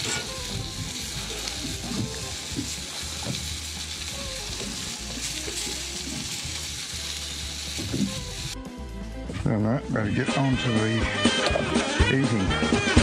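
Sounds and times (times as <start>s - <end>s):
onions sizzling on a grill plate: 0.0s - 8.6s.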